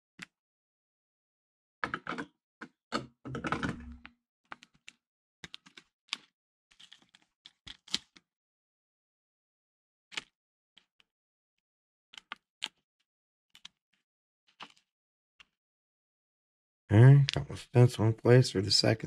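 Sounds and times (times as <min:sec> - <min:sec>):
plastic clicks and crackles: 0:03.3 - 0:08.2.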